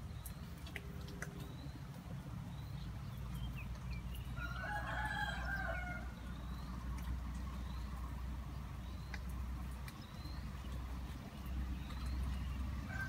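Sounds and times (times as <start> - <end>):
rooster crowing: 4.4 - 6.1.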